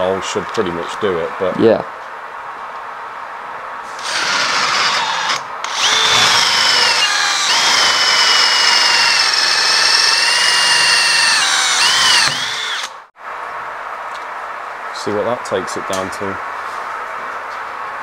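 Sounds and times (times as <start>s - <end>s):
drill boring into metal: 4.0s - 13.0s.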